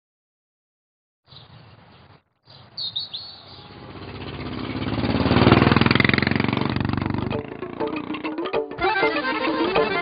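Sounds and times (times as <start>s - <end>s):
bird chirps: 1.3s - 5.0s
motorcycle engine running: 3.6s - 10.0s.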